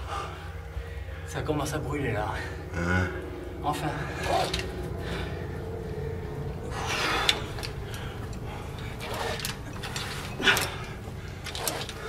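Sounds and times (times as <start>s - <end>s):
rope and gear rustling: 3.4s - 12.0s.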